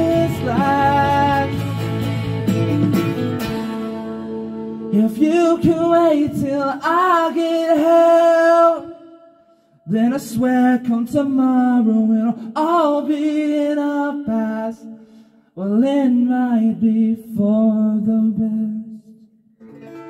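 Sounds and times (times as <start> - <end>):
acoustic guitar strumming: 0.0 - 6.4, 19.6 - 20.0
person singing: 0.0 - 9.1.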